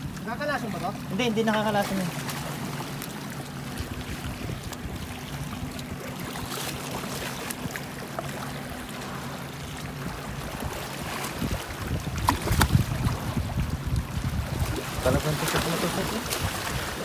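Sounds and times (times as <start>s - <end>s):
waves splashing on boulders: 0.0s - 5.0s, 9.9s - 17.0s
wind noise on microphone: 4.2s - 5.7s, 10.0s - 17.0s.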